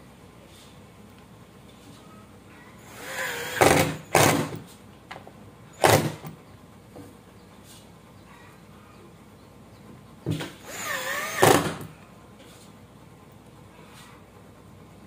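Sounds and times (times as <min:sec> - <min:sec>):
impact driver driving screw: 0:03.0 - 0:04.6, 0:05.8 - 0:06.3, 0:10.4 - 0:11.9.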